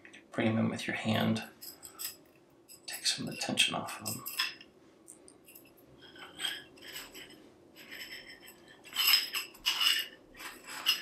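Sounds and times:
elastic cords rubbing: 5.5 - 11.0.

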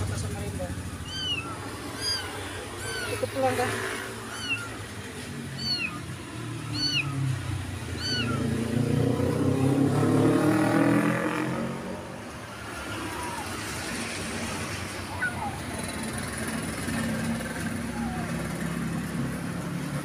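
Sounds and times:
passing motorbike engines: 0.0 - 20.0
kitten meowing: 0.9 - 8.8, 12.5 - 13.8, 15.0 - 16.0, 17.6 - 18.5.

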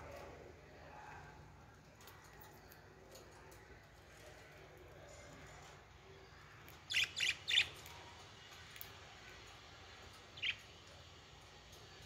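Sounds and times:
budgerigars chirping: 6.9 - 7.8, 10.4 - 10.6.

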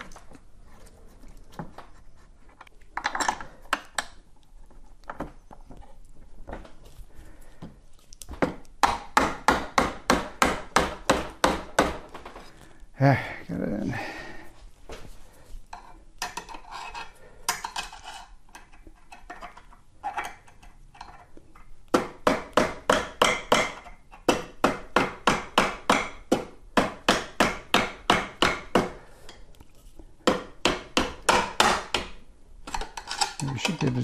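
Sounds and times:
handling sounds: 32.6 - 34.0.

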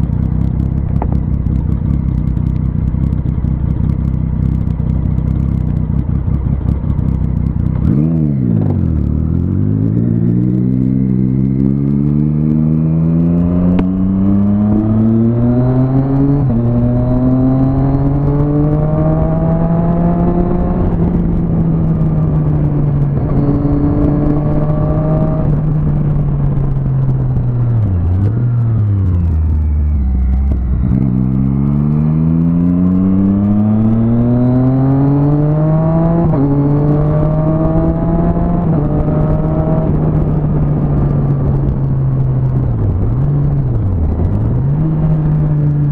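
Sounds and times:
motorcycle engine accelerating: 0.0 - 45.9.

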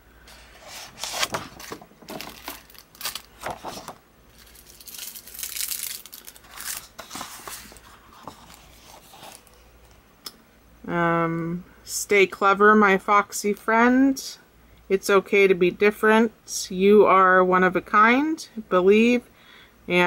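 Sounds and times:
plastic sleeves crinkling: 0.3 - 9.6.

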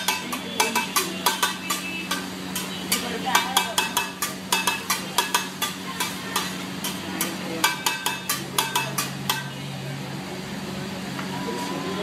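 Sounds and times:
metal spatula clacking on griddle: 0.0 - 9.6
food sizzling: 0.0 - 9.8.

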